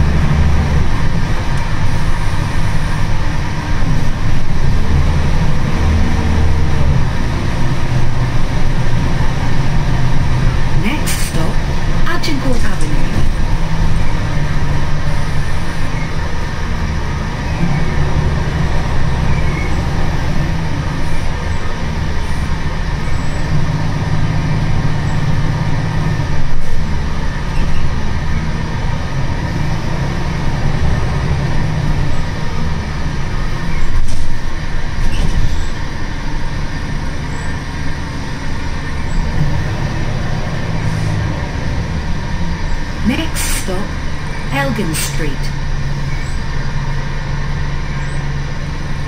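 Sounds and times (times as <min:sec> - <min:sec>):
bus engine and road drone: 0:00.0 - 0:49.0.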